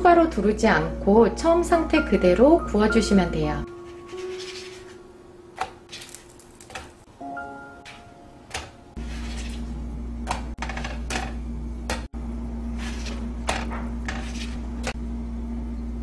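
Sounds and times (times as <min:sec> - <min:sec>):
steady low hum: 0:08.0 - 0:16.0.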